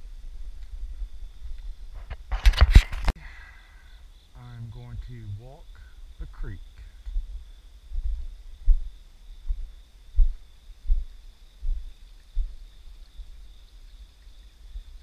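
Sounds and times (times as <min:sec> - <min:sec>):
footsteps dull thuds: 0:07.0 - 0:13.3.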